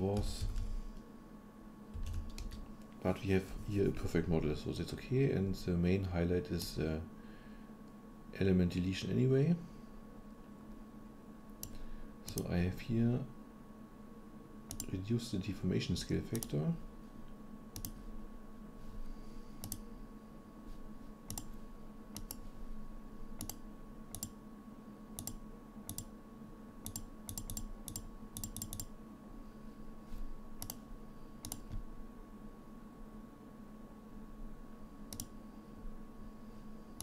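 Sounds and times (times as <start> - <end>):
faint electrical hum: 0.0 - 37.0
computer mouse clicking: 11.6 - 12.5, 14.7 - 14.9, 16.3 - 16.5, 17.8 - 18.0, 19.6 - 19.8, 21.3 - 21.5, 22.1 - 22.4, 23.4 - 24.4, 25.2 - 26.1, 26.8 - 28.9, 30.6 - 30.8, 31.4 - 31.8, 35.1 - 35.4.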